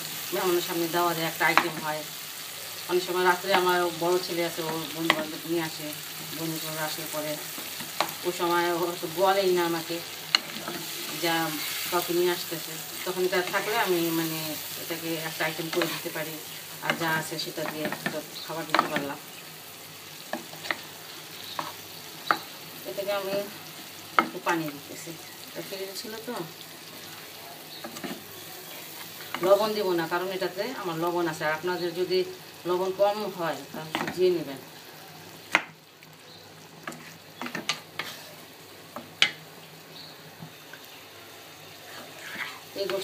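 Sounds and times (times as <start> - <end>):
meat sizzling in oil: 0.0 - 43.0
spatula scraping frying pan: 10.0 - 19.0, 36.8 - 38.5, 41.8 - 43.0
spatula knocking and scraping pan: 15.5 - 16.2, 16.8 - 19.2.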